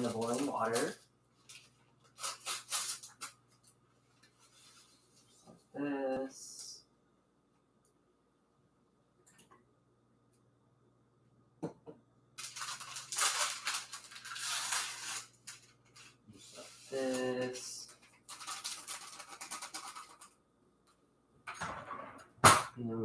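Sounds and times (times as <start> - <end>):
rustling and scraping at stove: 0.0 - 5.7, 12.6 - 20.3.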